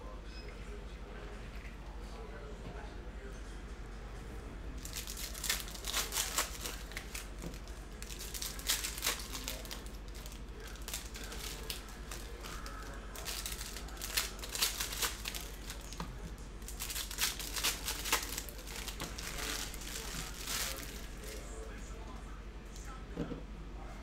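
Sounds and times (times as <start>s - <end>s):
foil wrappers crinkling and tearing: 4.8s - 21.6s.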